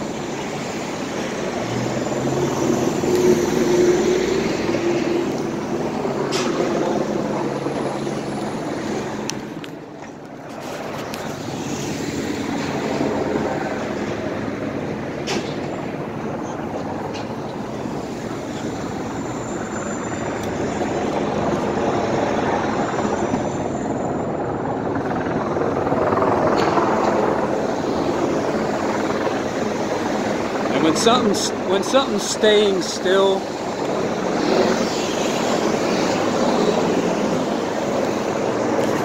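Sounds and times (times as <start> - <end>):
traffic rumble: 0.0 - 39.0.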